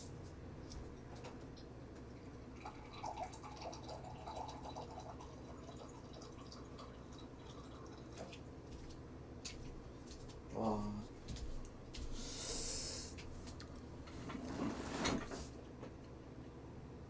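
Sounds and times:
faint water flowing: 2.1s - 8.9s.

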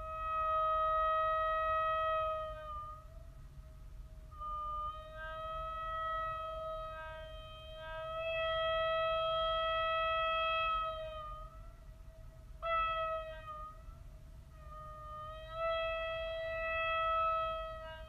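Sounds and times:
marine horn blast: 0.0s - 3.2s, 4.3s - 18.0s.

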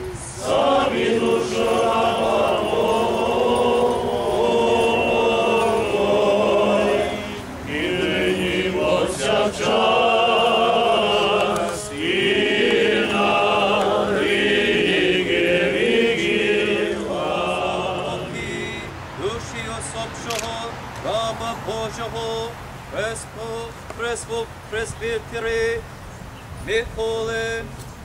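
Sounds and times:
group singing slow chant: 0.0s - 19.3s.

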